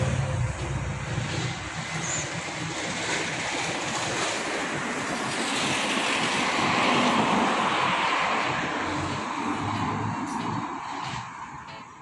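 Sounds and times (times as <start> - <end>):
vehicle passing: 0.0 - 11.6.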